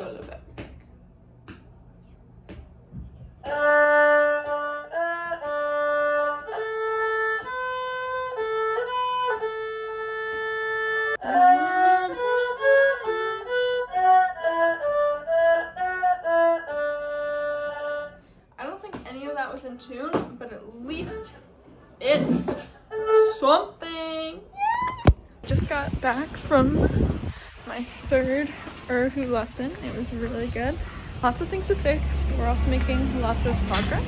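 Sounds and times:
bowed fiddle melody: 0:03.4 - 0:18.3, 0:22.9 - 0:34.0.

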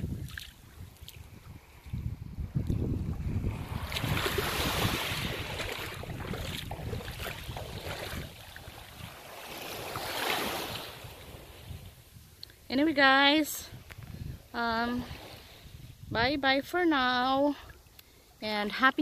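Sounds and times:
wind buffeting microphone: 0:00.0 - 0:17.8
waves washing up pebble beach: 0:03.4 - 0:11.1.

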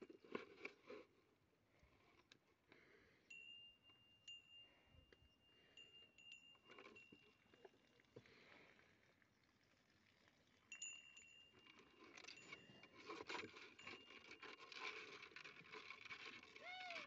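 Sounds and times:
plastic bucket rubbing and scraping: 0:12.2 - 0:17.0.

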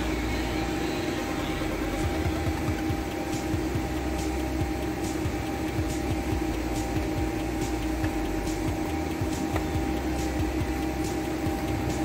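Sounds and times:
machinery hum: 0:00.0 - 0:12.0.

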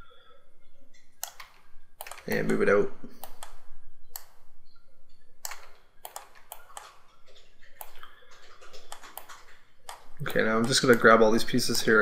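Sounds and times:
mouse and keyboard clicks: 0:01.0 - 0:04.4, 0:05.4 - 0:11.2.

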